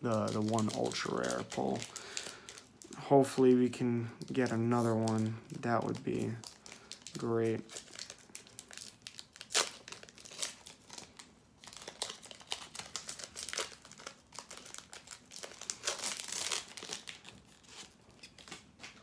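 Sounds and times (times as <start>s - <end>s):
foil wrapper crinkling and tearing: 0.0s - 19.0s.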